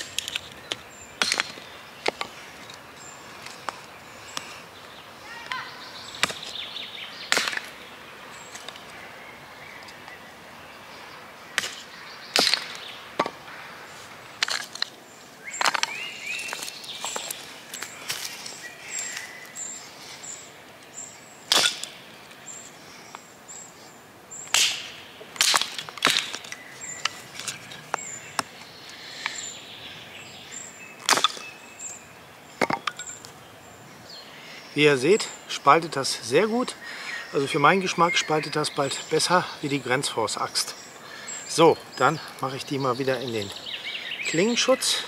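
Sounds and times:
hatchet chopping wood: 0.1 - 2.3, 6.2 - 6.5, 7.3 - 7.7, 11.6 - 13.4, 21.5 - 21.9, 24.5 - 26.5, 31.0 - 31.5.

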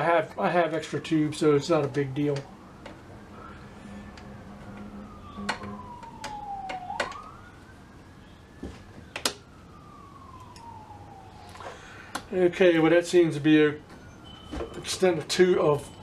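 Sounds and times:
emergency vehicle siren wailing: 0.0 - 16.0
switches clicking: 4.1 - 7.3, 9.1 - 9.4.

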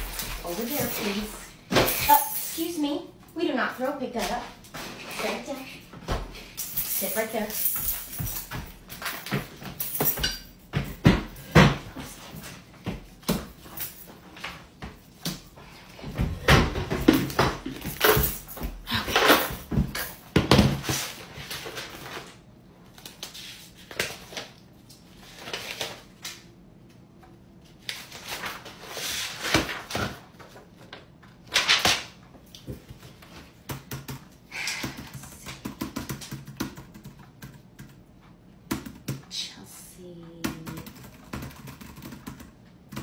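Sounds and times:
keyboard typing: 34.9 - 38.0, 40.4 - 43.0.

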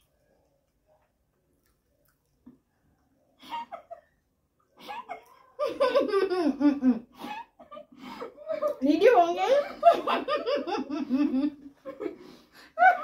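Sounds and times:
woman giggling and laughing: 3.4 - 4.2, 4.8 - 13.0.

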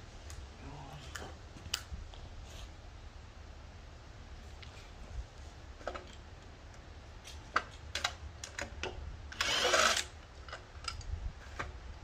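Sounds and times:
cordless drill running: 9.4 - 10.1.

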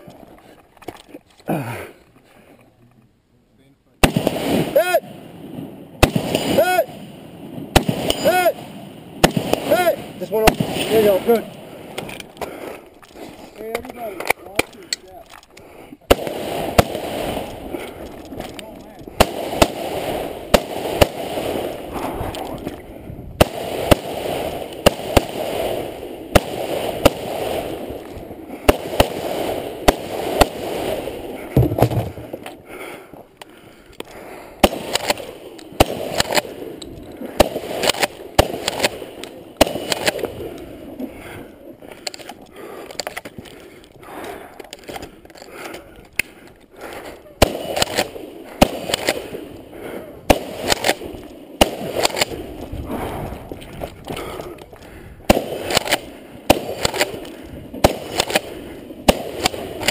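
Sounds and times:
gunshots: 4.0 - 12.6, 16.0 - 22.8, 23.4 - 32.4, 34.6 - 41.4, 47.4 - 53.4, 54.1 - 59.9
shooter moving on foot: 31.5 - 32.6.

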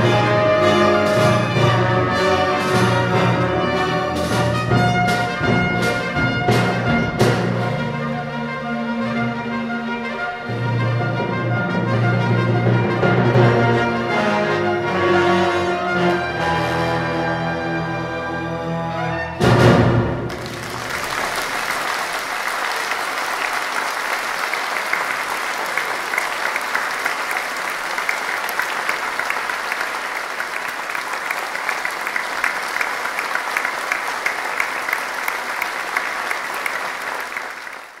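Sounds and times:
trumpet and orchestra piece: 0.0 - 21.9
audience applause: 20.3 - 38.0.

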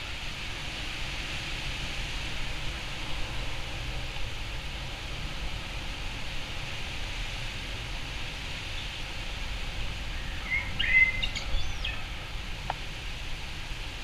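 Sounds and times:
steady background hiss: 0.0 - 14.0
bird chirping: 10.1 - 12.2.

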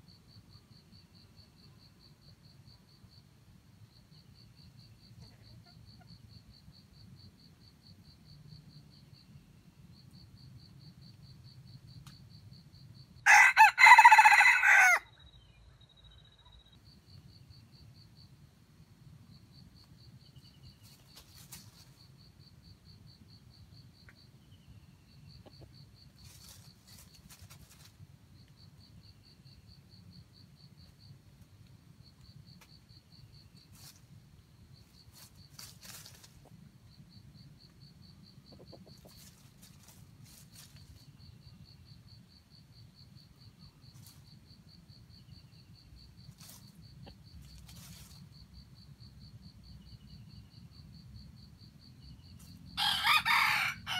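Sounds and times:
rustling noise: 20.8 - 22.1, 26.2 - 28.1, 33.6 - 34.2, 34.8 - 36.6, 39.0 - 41.2, 46.2 - 48.5.

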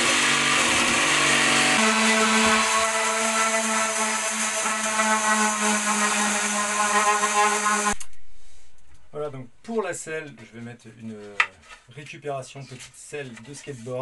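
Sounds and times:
electric orbital sander on wood: 0.0 - 8.0.

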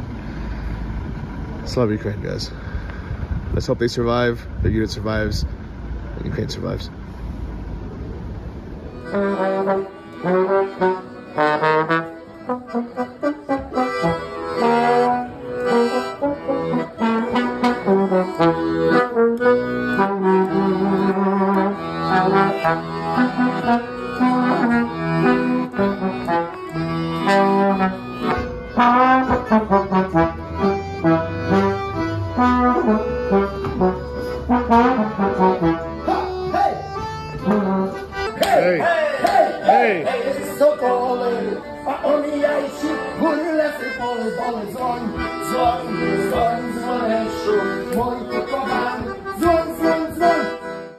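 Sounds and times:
low rumble: 0.0 - 9.0
lively instrumental music: 8.7 - 50.9.

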